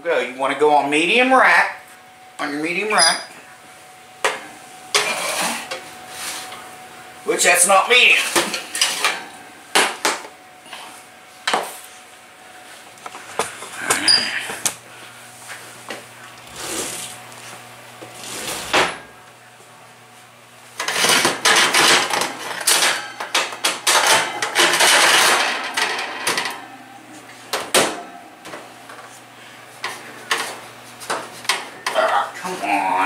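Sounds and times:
metal oven racks clanking: 4.9 - 5.8, 7.4 - 10.1, 18.1 - 19.2, 20.8 - 28.7.

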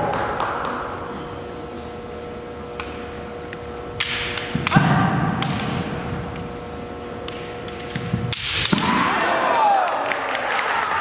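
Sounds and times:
bamboo swords cracking: 7.3 - 9.1.

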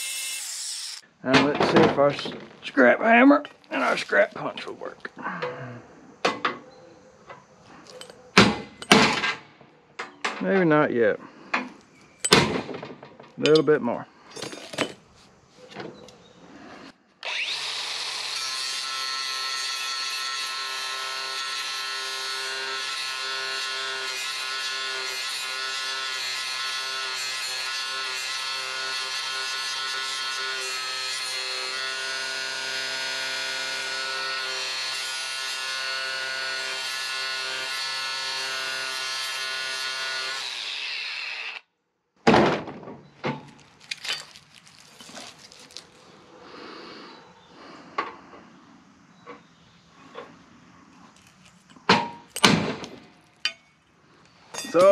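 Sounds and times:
angle grinder grinding steel: 0.0 - 1.1, 17.2 - 41.6
loud metal clanks: 8.4 - 10.4, 12.2 - 13.7.

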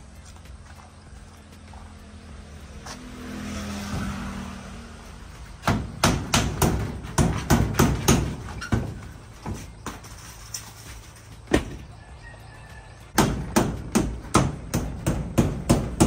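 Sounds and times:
hammer striking nails: 5.6 - 9.0, 13.2 - 16.0.

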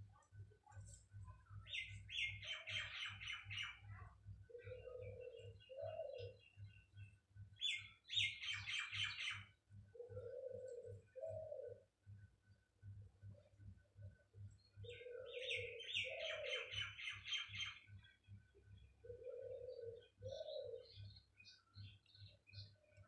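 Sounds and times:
faint low pulsing hum: 0.0 - 7.6, 9.5 - 16.9
birds chirping: 0.1 - 23.0
dove cooing: 1.7 - 6.5, 7.6 - 12.0, 14.8 - 17.8, 19.0 - 21.2.

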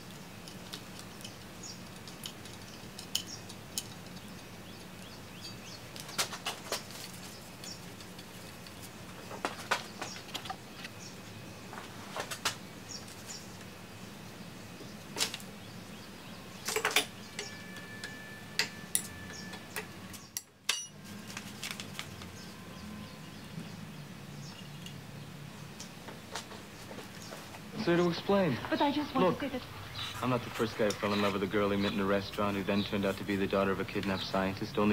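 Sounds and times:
steady low hum: 0.0 - 34.9
metal parts clinking: 0.4 - 5.0, 16.6 - 21.8.

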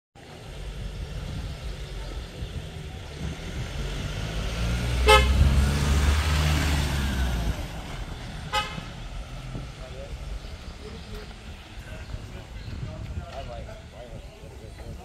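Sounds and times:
vehicle engine rumble: 0.2 - 15.0
car horn toot: 5.0 - 5.6, 8.5 - 9.0.

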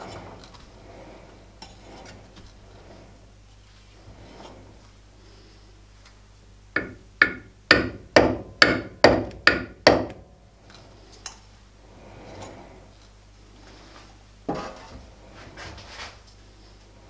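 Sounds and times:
hammer tapping metal cylinder: 6.8 - 10.2.

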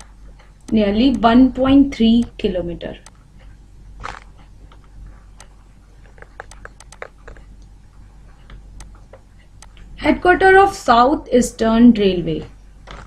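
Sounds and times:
stylus tapping on tablet: 0.0 - 3.4, 4.0 - 7.5, 8.4 - 9.9
low steady hum: 0.0 - 13.0.

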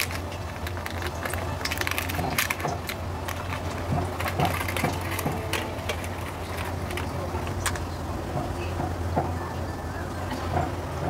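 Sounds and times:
paper liner crinkling: 0.0 - 7.9
wooden chopsticks clicking: 0.0 - 7.9.

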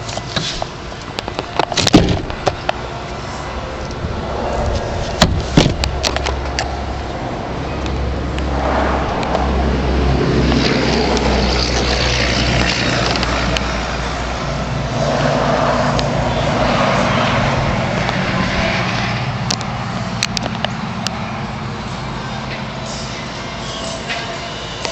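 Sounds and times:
sharp knocks: 1.7 - 2.6, 5.2 - 5.9.

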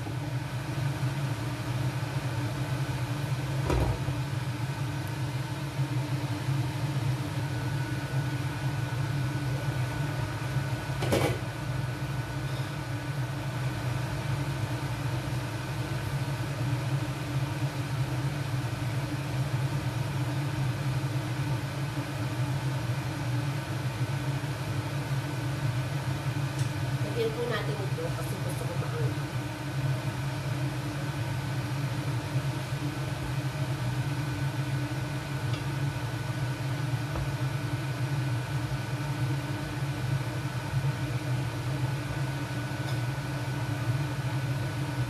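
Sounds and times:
kitchen appliance humming: 0.0 - 45.0.

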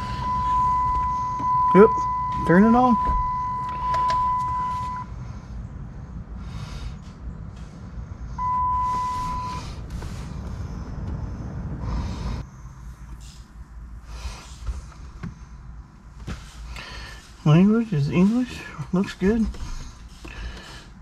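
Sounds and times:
electronic beep: 0.0 - 5.1, 8.4 - 9.6.

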